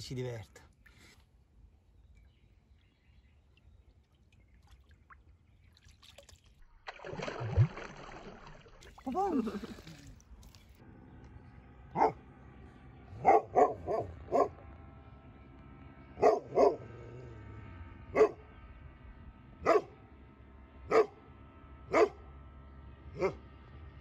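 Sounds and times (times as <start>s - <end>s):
dog barking: 12.0s - 12.2s, 13.2s - 14.6s, 16.2s - 17.0s, 18.1s - 18.4s, 19.6s - 20.0s, 20.9s - 21.2s, 21.9s - 22.2s, 23.2s - 23.4s.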